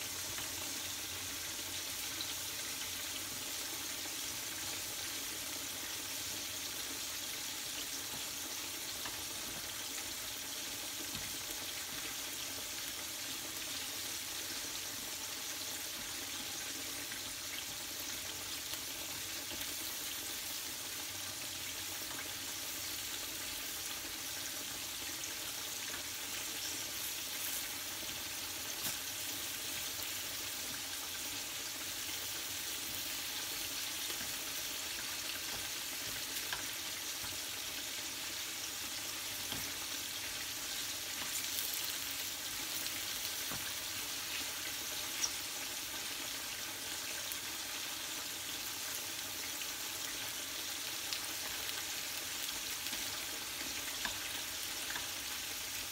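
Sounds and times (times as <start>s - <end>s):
onions sizzling in frying pan: 0.0s - 55.9s
tongs clicking on pan: 28.8s - 29.1s, 35.0s - 37.4s, 52.9s - 55.3s.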